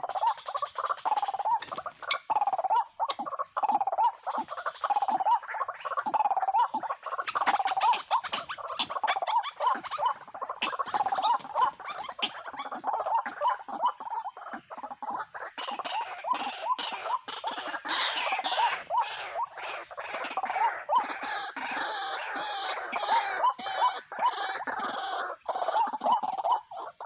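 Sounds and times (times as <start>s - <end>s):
waterhens croaking calls: 0.0s - 27.0s
rustling and wing-flapping: 0.6s - 2.2s.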